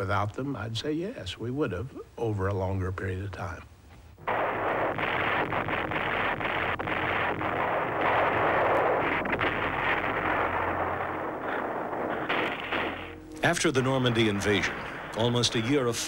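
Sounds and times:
artillery fire and explosions: 4.2s - 16.0s.

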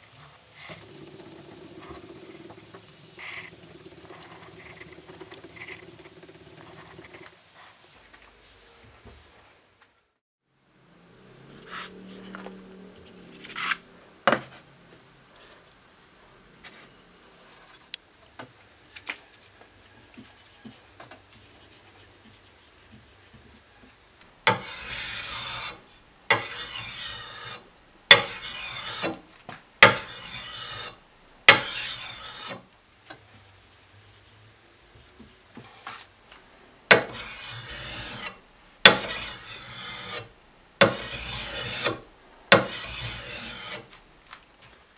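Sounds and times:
blade rasping on whetstone: 24.5s - 29.2s, 29.8s - 32.6s, 36.9s - 44.0s.

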